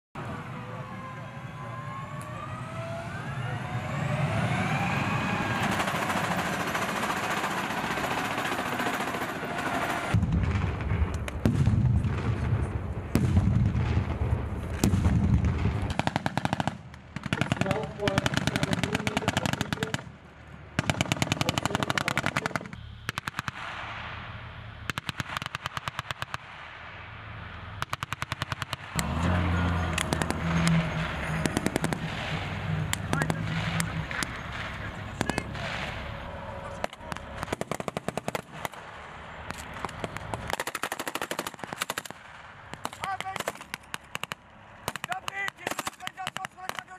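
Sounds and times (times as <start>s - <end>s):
armoured vehicle engine whine: 0.2s - 16.2s, 21.4s - 25.1s, 26.6s - 40.6s
automatic weapons fire: 5.5s - 20.1s, 20.8s - 24.0s, 24.9s - 26.6s, 27.8s - 29.1s, 30.0s - 32.4s, 36.9s - 38.8s, 39.5s - 46.9s.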